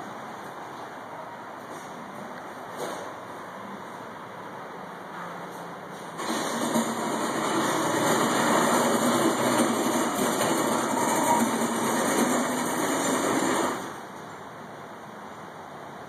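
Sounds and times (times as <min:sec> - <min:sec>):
motor-driven machine running: 0:06.2 - 0:14.0.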